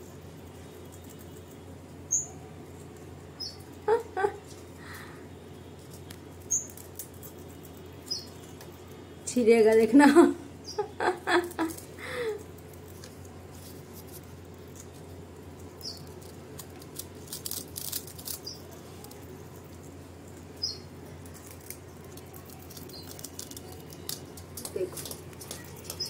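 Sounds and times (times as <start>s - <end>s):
parakeets chewing fruit: 0.0s - 10.0s, 10.6s - 26.0s.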